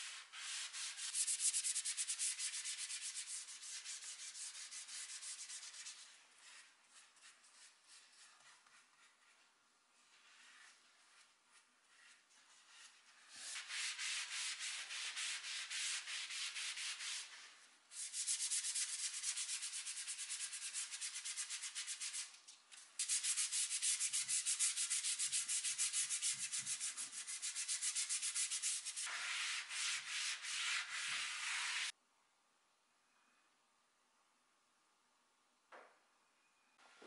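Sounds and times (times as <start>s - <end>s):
paintbrush scrubbing wood: 23.0s - 31.9s.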